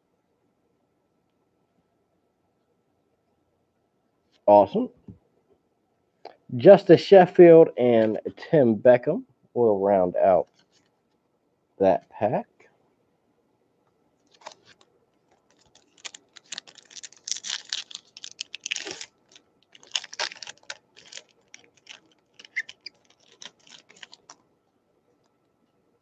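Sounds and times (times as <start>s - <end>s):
cards being handled: 14.2s - 24.4s
foil pack crinkling: 14.2s - 24.4s.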